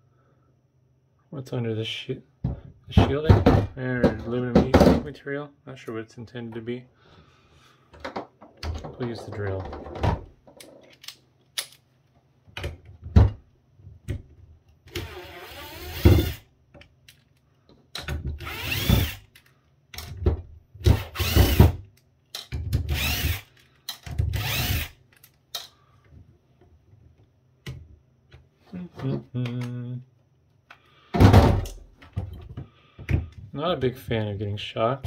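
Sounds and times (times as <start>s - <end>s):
cordless drill motor whine: 18.4s - 19.2s, 24.4s - 24.9s.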